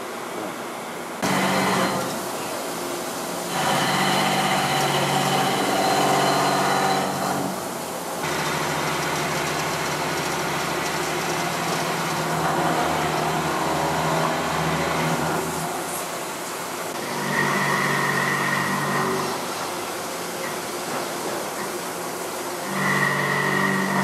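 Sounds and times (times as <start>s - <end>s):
milling machine cutting hum: 1.2s - 16.2s, 22.4s - 24.0s
coolant spraying hiss: 7.6s - 14.5s.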